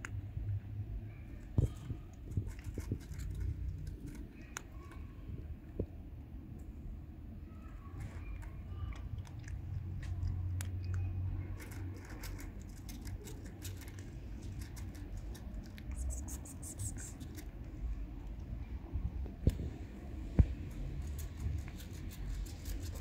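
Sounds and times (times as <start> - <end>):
cat crunching dry kibble: 1.6 - 4.7, 8.9 - 18.3, 20.6 - 23.0.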